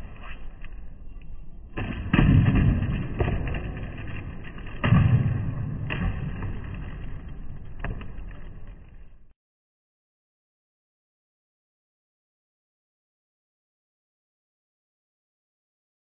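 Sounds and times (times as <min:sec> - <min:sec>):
skateboard wheels rolling: 0:00.0 - 0:09.3.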